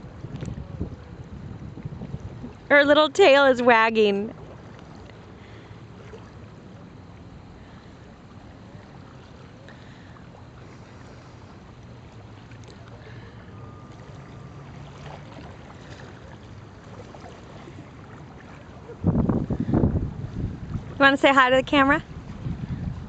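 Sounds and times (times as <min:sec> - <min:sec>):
wind: 0:00.0 - 0:23.0.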